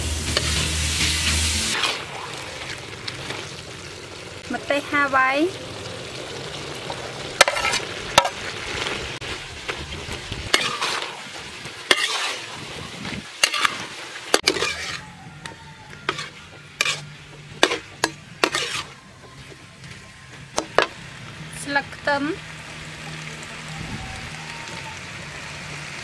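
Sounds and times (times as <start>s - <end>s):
metal spatula scraping wok: 0.0s - 3.4s, 7.4s - 9.3s, 10.4s - 15.2s, 16.0s - 19.6s
food sizzling in a wok: 0.0s - 26.0s.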